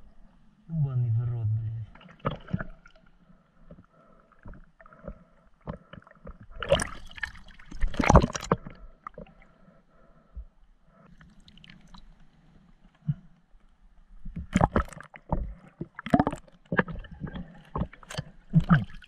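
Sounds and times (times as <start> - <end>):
water sloshing and splashing: 1.9 - 9.6, 14.2 - 19.0.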